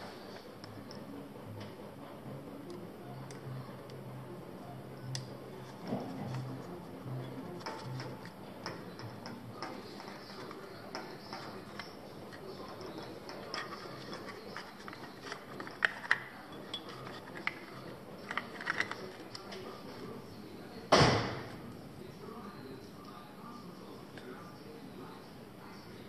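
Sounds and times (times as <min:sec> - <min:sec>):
hand tools clicking and clinking: 0:06.3 - 0:19.6.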